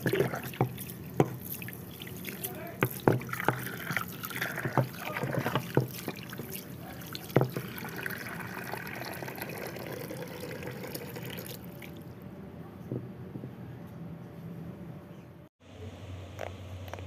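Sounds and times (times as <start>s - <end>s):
water trickling and sloshing: 0.0s - 12.1s.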